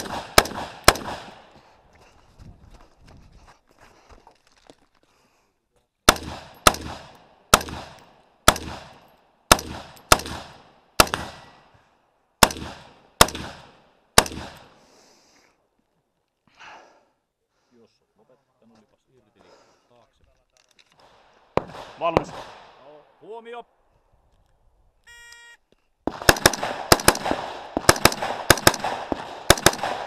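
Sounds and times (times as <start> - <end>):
rifle shots with echo: 0.0 - 1.6, 6.1 - 11.7, 12.4 - 14.8, 21.0 - 23.1, 26.0 - 30.0.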